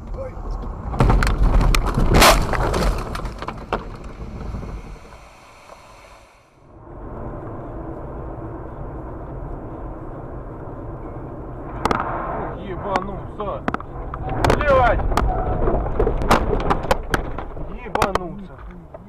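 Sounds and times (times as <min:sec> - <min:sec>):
car interior engine and tyre rumble: 0:00.0 - 0:19.0
loud knocks and clattering: 0:00.9 - 0:04.9, 0:13.0 - 0:19.0.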